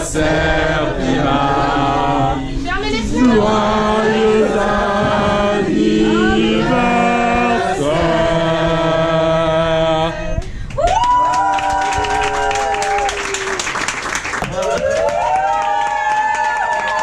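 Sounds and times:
group of people singing together: 0.0s - 10.5s
people clapping: 10.4s - 17.0s.

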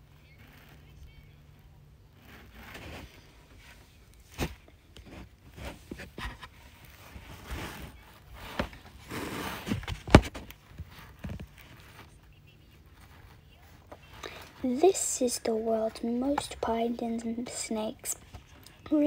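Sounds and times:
paper scraping and rustling: 2.2s - 12.2s.

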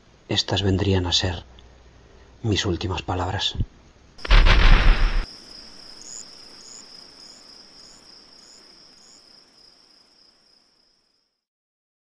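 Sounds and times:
crickets chirping: 0.0s - 11.4s.

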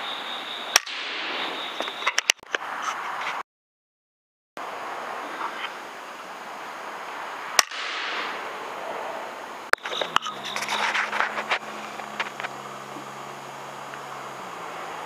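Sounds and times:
air rifle shots: 0.7s - 1.6s, 7.6s - 8.5s
low steady hum: 5.0s - 15.0s.

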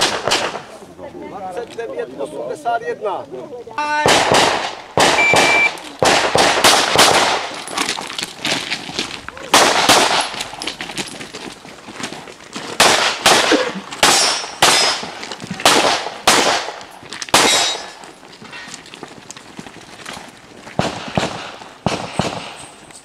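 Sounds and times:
pistol shots: 0.0s - 0.7s, 4.0s - 7.6s, 9.5s - 10.4s, 12.8s - 18.0s, 20.8s - 22.8s.

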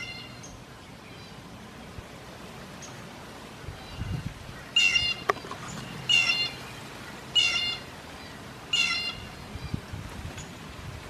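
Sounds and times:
bird mewing call: 3.8s - 9.5s.

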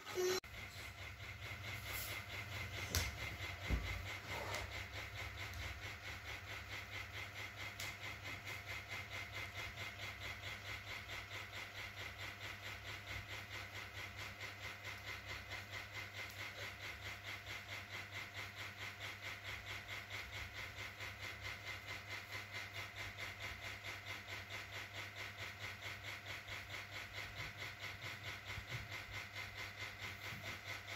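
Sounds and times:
ceiling fan blades whooshing: 0.0s - 11.6s.

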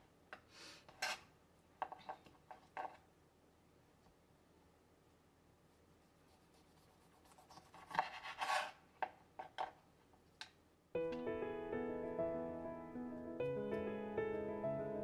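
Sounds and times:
piano music: 11.0s - 15.0s.

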